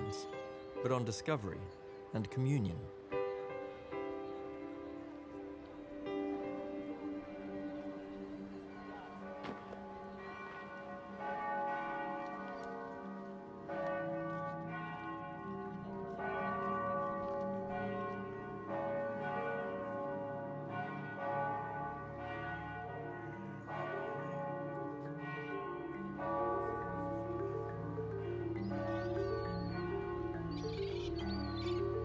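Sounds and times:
low sustained notes: 0:00.0 - 0:20.6
bells ringing: 0:00.0 - 0:32.0.

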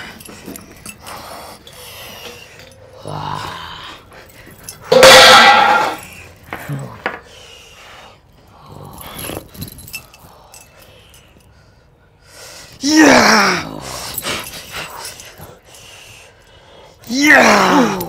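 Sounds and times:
man growling roars: 0:03.0 - 0:04.0, 0:12.8 - 0:14.0, 0:17.1 - 0:18.0.

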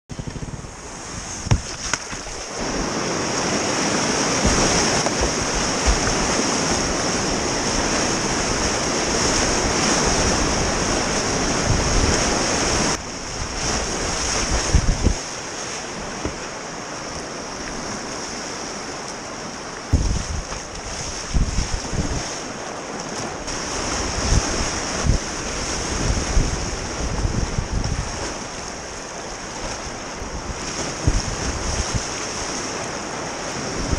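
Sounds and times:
wind buffeting microphone: 0:00.1 - 0:15.4, 0:19.9 - 0:22.4, 0:23.5 - 0:29.0, 0:29.6 - 0:32.5, 0:33.6 - 0:33.9
river rushing and splashing: 0:00.2 - 0:33.9
paddle thumps on boat: 0:01.3 - 0:07.0, 0:16.1 - 0:16.6.

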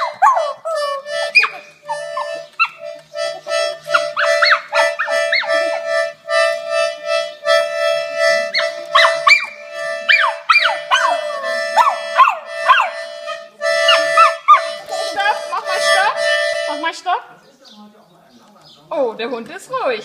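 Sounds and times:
small dog howling: 0:00.0 - 0:02.8, 0:08.5 - 0:12.9
toy accordion steady note: 0:00.4 - 0:17.3.

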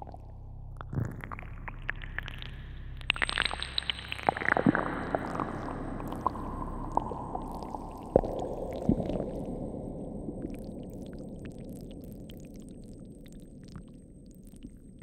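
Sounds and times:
low noisy electronic texture: 0:00.0 - 0:12.0.

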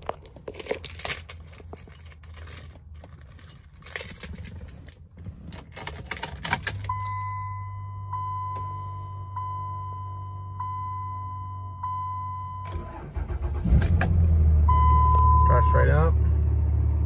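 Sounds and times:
keys jangling: 0:00.0 - 0:05.0.

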